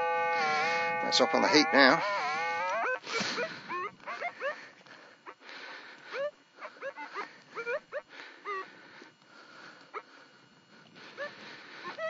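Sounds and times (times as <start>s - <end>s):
metal detector beeps: 0.0s - 4.6s.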